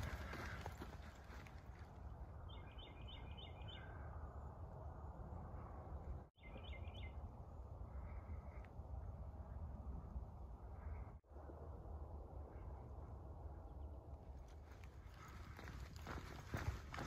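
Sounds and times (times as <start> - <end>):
songbird singing: 0.0 - 4.5, 6.0 - 11.1.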